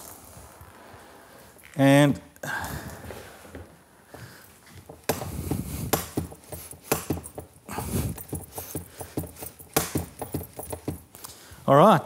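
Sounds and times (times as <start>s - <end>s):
clicks and knocks of bike fork: 8.2s - 11.1s.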